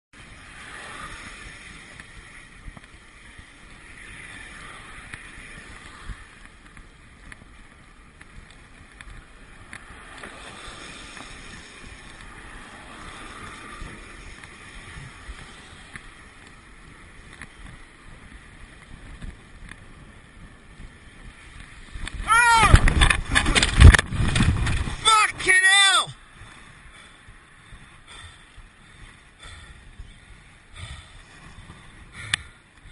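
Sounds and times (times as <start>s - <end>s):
bicycle tyre hiss: 0.2s - 22.4s, 26.2s - 32.9s
wind noise on microphone: 0.2s - 25.5s, 26.1s - 32.9s
cars passing: 0.2s - 32.9s.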